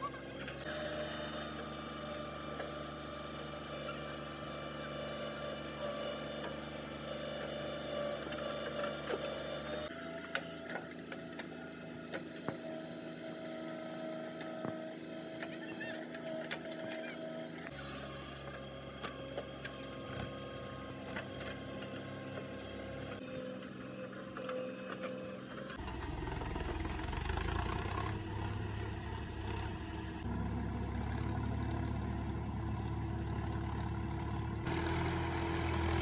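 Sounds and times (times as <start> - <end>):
tractor diesel engine running: 18.8 - 36.0.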